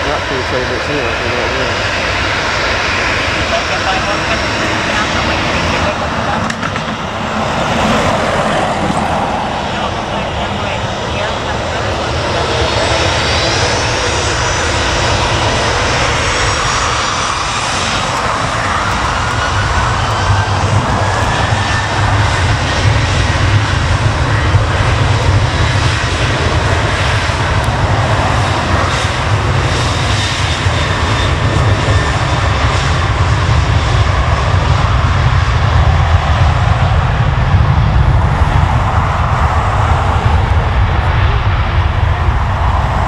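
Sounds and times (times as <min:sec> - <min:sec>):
jet engines rumbling and whining: 0:00.0 - 0:43.0.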